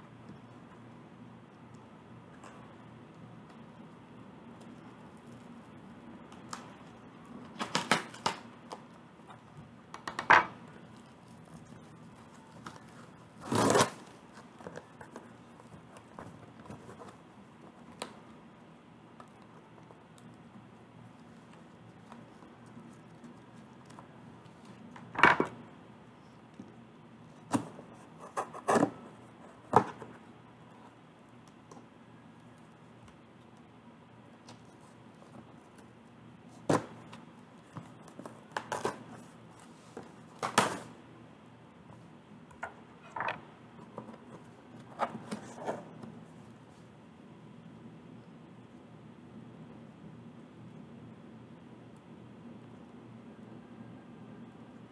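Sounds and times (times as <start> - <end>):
packing tape and cardboard ripping: 10.9 - 14.5.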